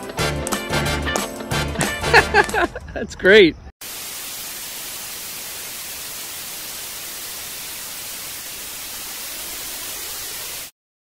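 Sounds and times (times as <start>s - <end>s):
television static hiss: 3.8s - 10.7s.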